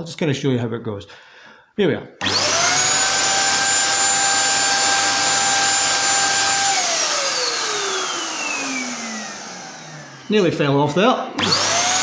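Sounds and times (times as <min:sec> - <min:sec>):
paint spray gun motor whine: 0:02.2 - 0:12.0.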